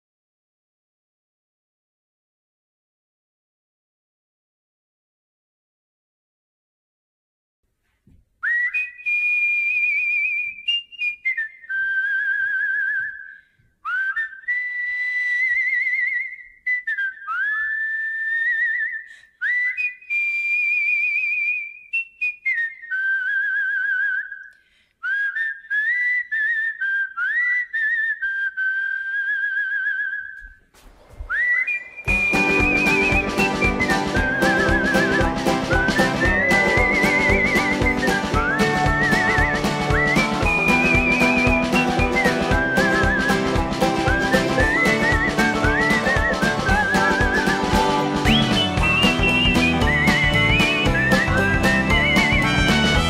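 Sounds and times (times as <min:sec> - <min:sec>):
person whistling a melody: 0:08.4 - 0:30.6, 0:31.3 - 0:53.0
backing music: 0:32.1 - 0:53.0.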